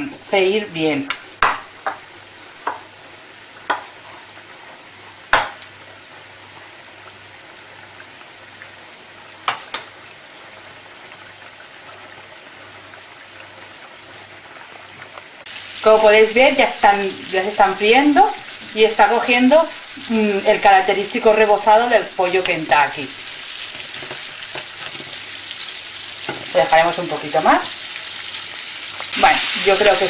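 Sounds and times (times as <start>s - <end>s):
chicken sizzling in hot oil: 0.0s - 30.0s.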